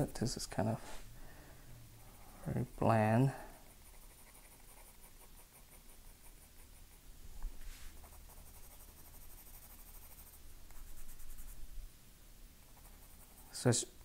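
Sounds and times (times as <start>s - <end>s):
pencil scratching on paper: 3.7s - 7.0s, 7.9s - 11.6s, 12.7s - 13.6s.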